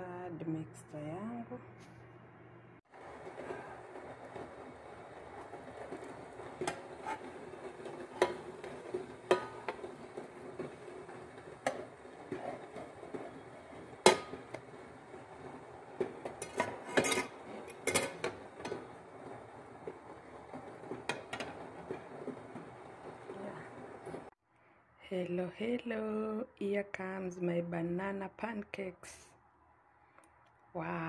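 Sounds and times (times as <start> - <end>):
spatula scraping frying pan: 3.0 - 24.3.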